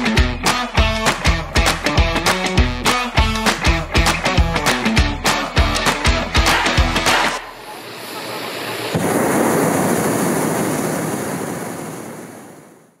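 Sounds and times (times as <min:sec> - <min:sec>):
background music with a beat: 0:00.0 - 0:07.4
steady rushing noise: 0:05.9 - 0:13.0.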